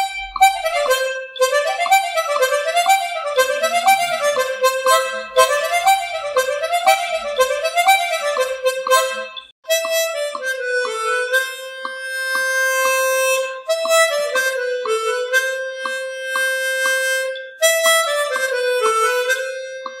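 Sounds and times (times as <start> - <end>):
light plucked notes: 0.0 - 20.0
reedy harmonica-like melody: 0.0 - 20.0.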